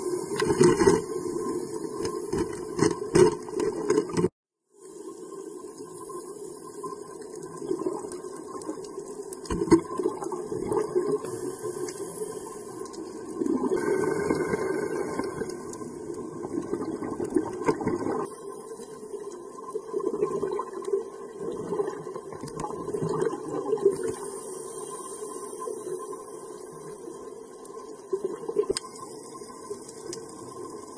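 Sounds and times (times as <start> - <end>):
underwater regulator bubbles: 6.6 - 26.1.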